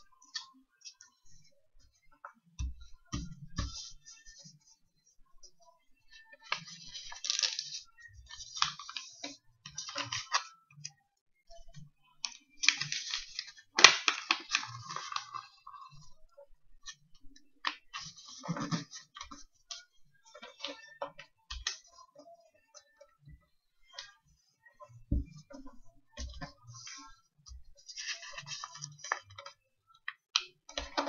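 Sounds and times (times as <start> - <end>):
paper rustling and crinkling: 6.4 - 10.5, 12.2 - 16.2, 17.6 - 22.0, 26.1 - 29.6, 30.3 - 31.0.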